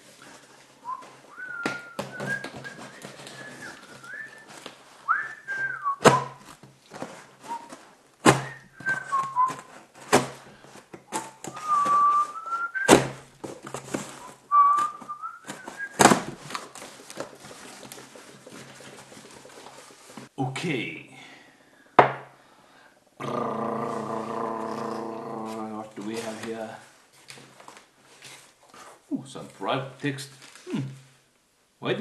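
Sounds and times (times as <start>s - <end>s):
man whistling a tune: 0.8s - 4.5s, 5.1s - 6.4s, 7.5s - 7.8s, 8.4s - 9.7s, 11.1s - 13.0s, 14.5s - 16.1s.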